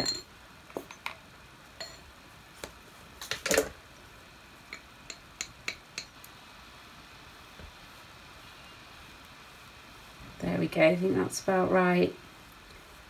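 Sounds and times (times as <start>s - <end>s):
paintbrush clinking glass jar: 0.0s - 1.0s.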